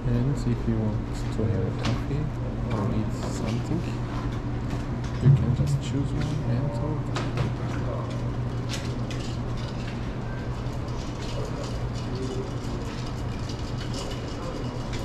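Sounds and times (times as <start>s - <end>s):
steady low hum: 0.0s - 15.0s
faint clinks and clatter: 7.9s - 15.0s.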